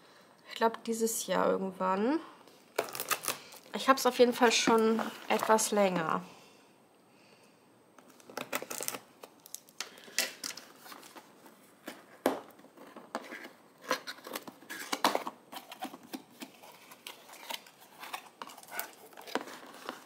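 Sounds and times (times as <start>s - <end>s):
shrink wrap crackling: 2.8s - 3.8s, 8.0s - 11.4s.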